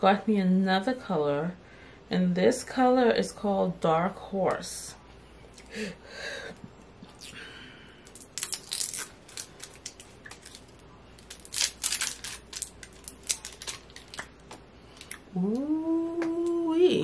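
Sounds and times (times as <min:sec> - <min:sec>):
packaging crinkling and crackling: 0:08.0 - 0:15.2.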